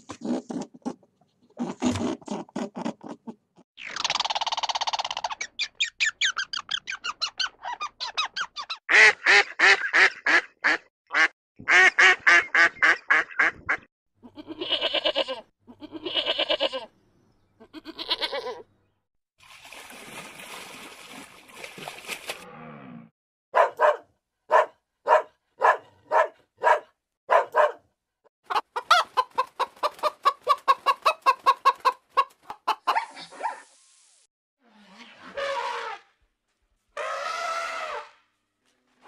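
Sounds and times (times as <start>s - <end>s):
sheep bleating: 14.3s - 16.9s, 17.7s - 18.6s.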